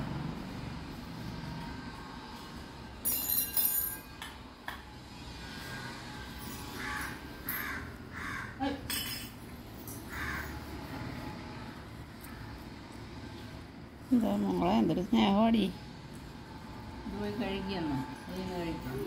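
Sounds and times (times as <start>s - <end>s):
low background hum: 0.0s - 19.0s
crow cawing: 6.7s - 8.6s, 10.0s - 10.8s.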